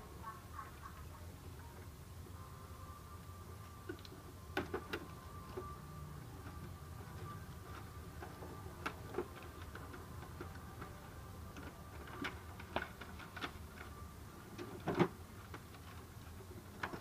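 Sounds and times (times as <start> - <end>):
plastic parts clicking inside printer: 6.5 - 17.0.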